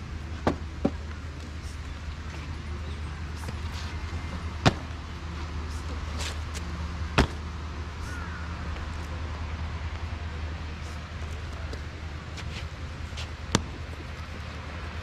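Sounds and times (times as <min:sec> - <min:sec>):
steady low hum: 0:00.0 - 0:15.0
boot stamps on pavement: 0:07.2 - 0:07.4.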